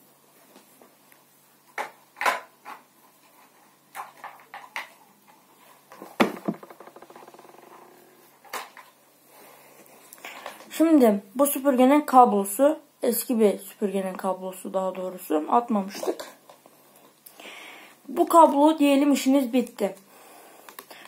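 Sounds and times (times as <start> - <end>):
objects knocking and clattering: 5.9 - 8.9
rapid rattle: 6.0 - 8.2.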